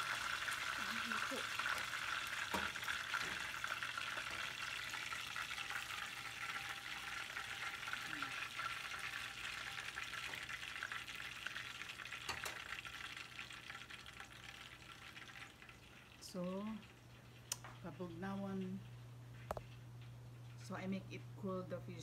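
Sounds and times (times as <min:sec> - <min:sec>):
fish sizzling in hot oil: 0:00.0 - 0:17.6.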